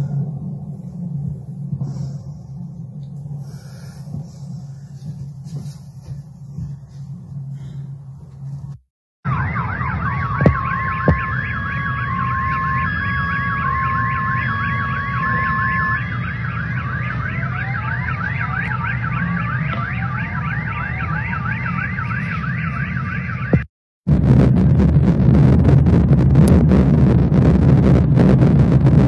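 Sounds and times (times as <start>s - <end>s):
low rumble: 0.0s - 22.5s, 24.1s - 29.0s
car alarm wailing: 9.2s - 23.7s
two-tone car alarm: 9.2s - 23.7s
sharp knocks: 10.4s - 11.3s.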